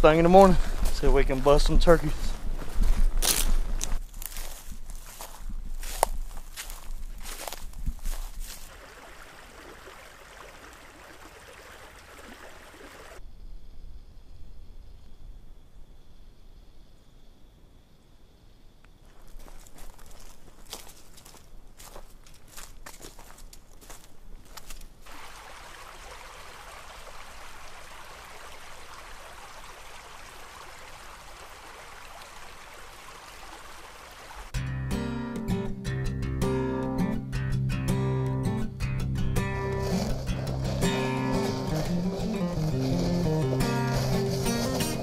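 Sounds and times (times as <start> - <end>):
creek running over stones: 0.0 - 13.2, 19.4 - 34.6, 39.6 - 45.0.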